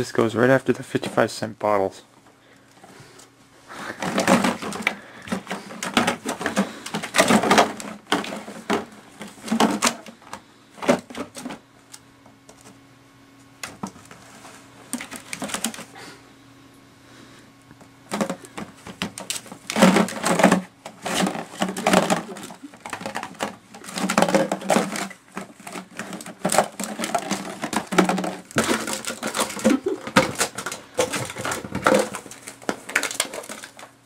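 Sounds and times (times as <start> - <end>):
plastic bottles crinkling and clattering: 3.7 - 11.6, 14.9 - 16.0, 18.1 - 34.0.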